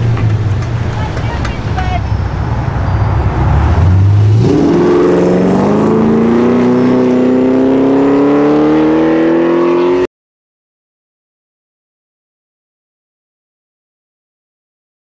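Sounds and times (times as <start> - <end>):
car engine revving and accelerating: 2.1 - 10.1.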